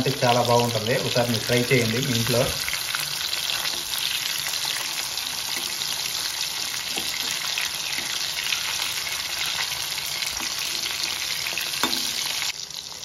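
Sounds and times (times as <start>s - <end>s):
fish sizzling in oil: 0.0s - 13.0s.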